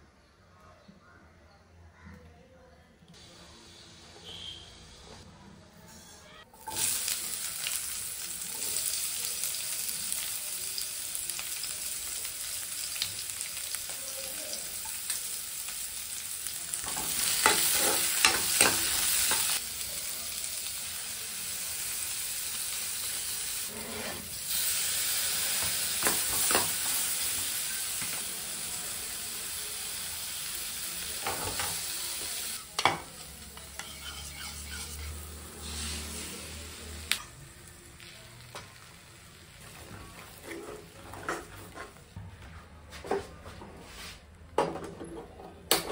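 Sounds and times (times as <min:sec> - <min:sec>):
oil sizzling in frying pan: 0:06.5 - 0:40.4
ladle scraping a pan: 0:23.7 - 0:24.4, 0:33.6 - 0:36.2.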